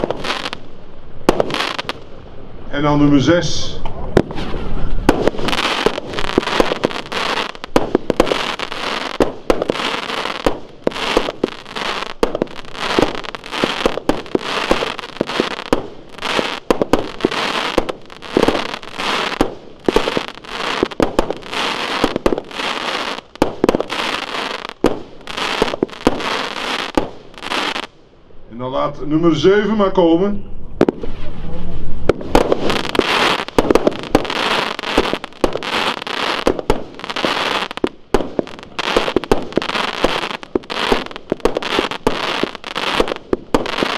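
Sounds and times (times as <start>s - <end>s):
firework cake firing shots: 1.3s - 1.8s, 4.2s - 7.0s, 9.2s - 11.5s, 24.8s - 27.2s, 32.1s - 43.9s
crackle of bursting stars: 4.4s - 27.7s.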